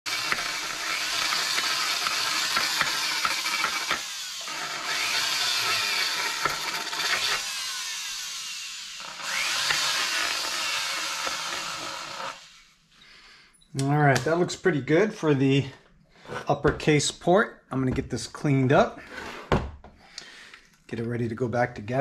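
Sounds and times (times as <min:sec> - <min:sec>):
rotary grinder whining on metal: 0:00.0 - 0:12.7.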